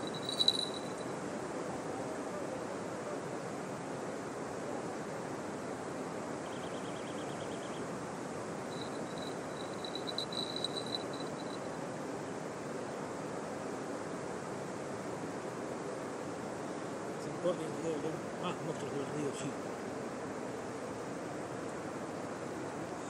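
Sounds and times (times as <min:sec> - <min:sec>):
high chirps: 0:00.0 - 0:01.0, 0:08.7 - 0:11.6
river rushing: 0:00.0 - 0:06.4, 0:07.9 - 0:17.2.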